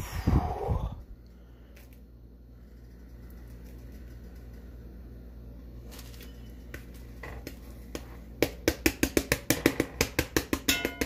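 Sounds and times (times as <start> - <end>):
low steady hum: 0.0 - 11.0
spatula tapping cast-iron skillet: 8.0 - 11.0.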